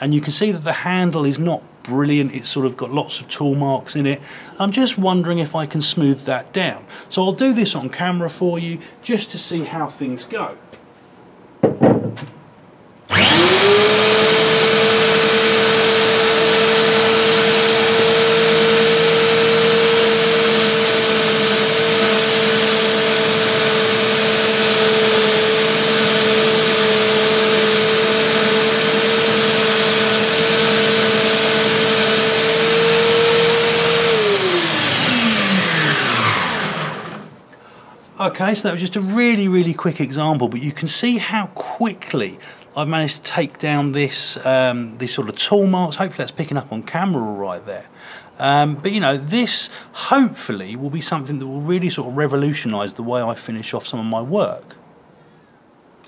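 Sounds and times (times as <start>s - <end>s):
wood pressed on sanding belt: 13.1s - 37.3s
belt sander whining: 13.1s - 37.4s.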